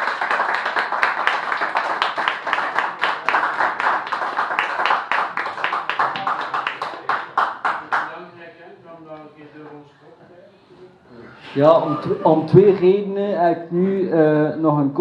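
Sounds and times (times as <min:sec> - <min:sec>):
small audience applauding: 0:00.0 - 0:08.4.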